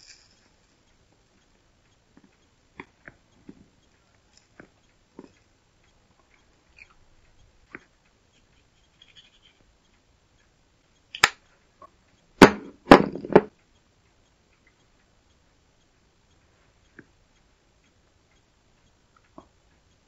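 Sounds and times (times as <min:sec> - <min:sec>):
sharp click: 0:11.0 - 0:11.5.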